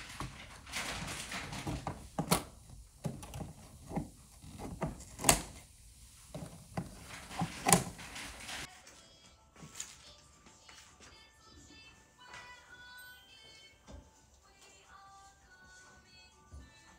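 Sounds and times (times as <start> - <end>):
scissors snipping plastic straps: 1.6 - 5.6.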